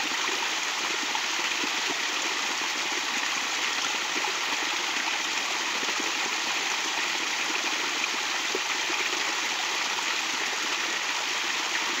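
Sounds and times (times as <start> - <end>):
stream splashing over rocks: 0.0 - 12.0.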